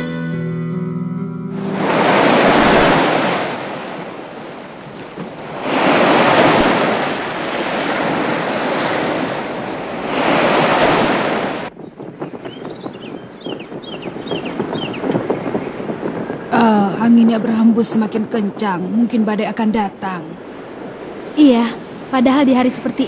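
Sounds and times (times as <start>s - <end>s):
sea waves surging: 1.5s - 23.0s
storm wind: 1.5s - 23.0s.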